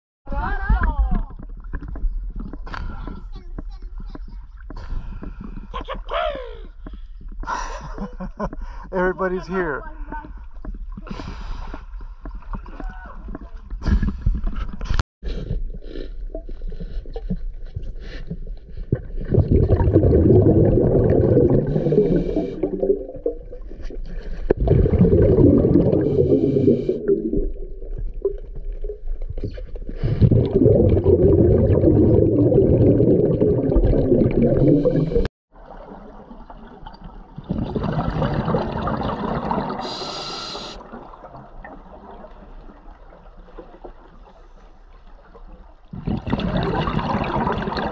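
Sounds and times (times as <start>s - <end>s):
underwater regulator bubbles: 16.3s - 44.4s, 45.8s - 47.9s.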